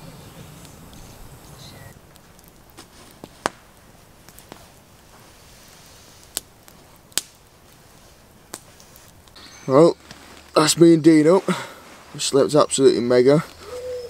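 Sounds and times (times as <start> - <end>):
campfire crackling: 0.0 - 14.0
sharp fire pops: 0.3 - 10.6.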